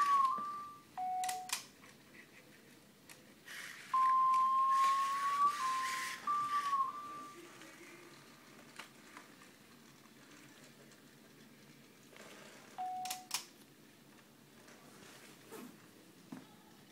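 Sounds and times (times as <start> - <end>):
robot dog electronic beep: 4.0 - 7.4.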